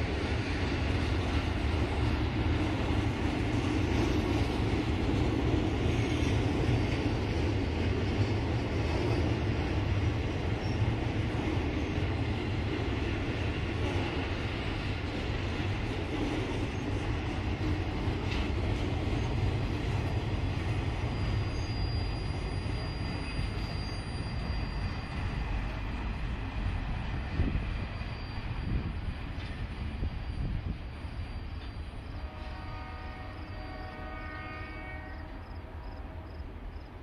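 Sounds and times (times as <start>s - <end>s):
train wheels rumbling: 0.0s - 37.0s
high wheel squeal: 20.7s - 25.8s, 27.4s - 32.1s.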